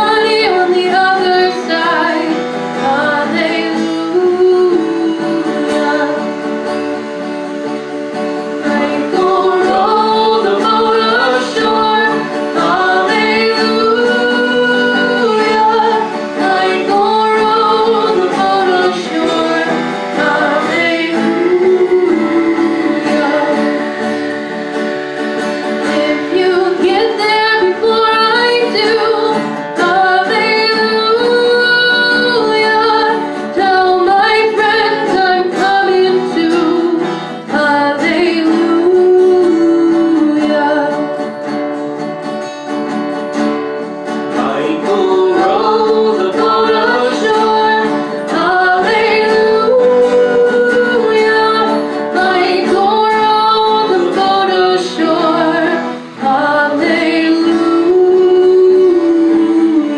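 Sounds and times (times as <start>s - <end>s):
woman singing: 0.0s - 7.7s, 8.4s - 41.5s, 44.3s - 59.9s
strummed guitar: 0.0s - 59.9s.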